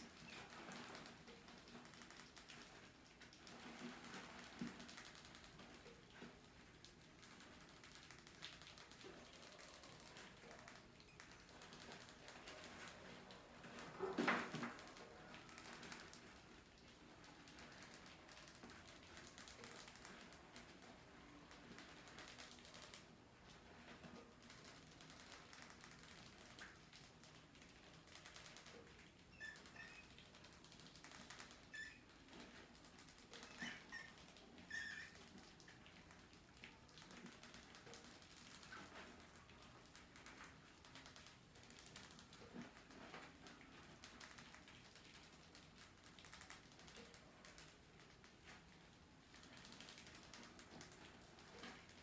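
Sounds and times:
background hiss: 0:00.0 - 0:52.0
faint high squeaks: 0:29.3 - 0:30.2, 0:31.6 - 0:32.1, 0:33.4 - 0:35.2.

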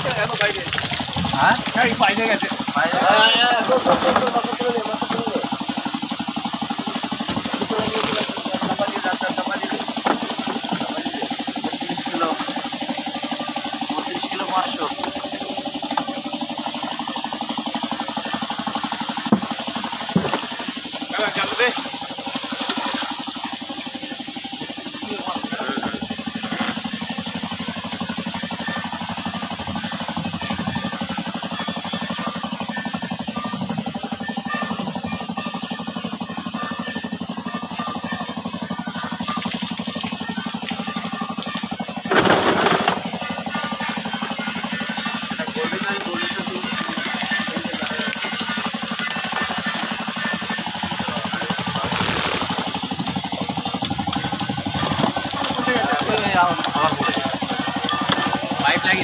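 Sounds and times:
engine idling with even knock: 0:00.0 - 0:59.0
faint voices: 0:00.0 - 0:59.0.

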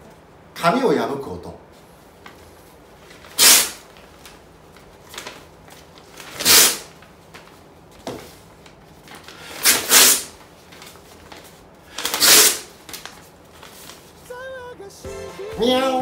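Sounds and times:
mouth imitating paper tearing: 0:03.4 - 0:03.8, 0:06.3 - 0:06.9, 0:09.6 - 0:10.4, 0:12.0 - 0:12.8.

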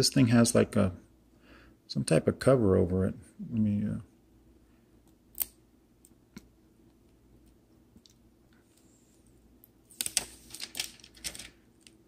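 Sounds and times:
plastic film crinkling: 0:09.9 - 0:11.6.

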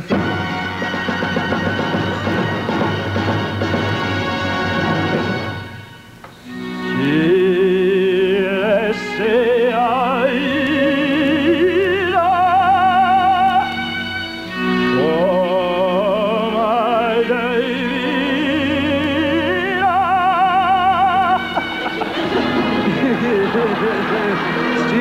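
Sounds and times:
man singing operatically: 0:06.8 - 0:13.8, 0:14.8 - 0:25.0
accompaniment chords: 0:10.3 - 0:25.0.

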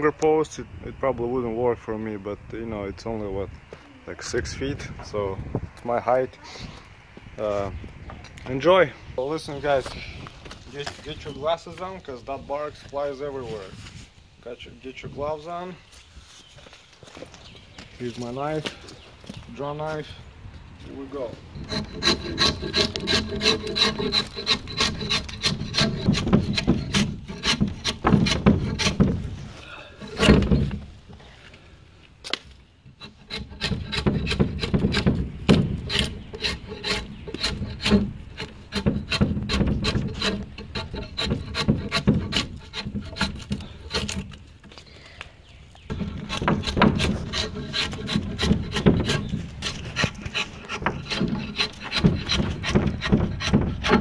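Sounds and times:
blade scraping bark from log: 0:21.6 - 0:29.3, 0:30.0 - 0:30.8, 0:33.0 - 0:44.4, 0:45.9 - 0:54.0.

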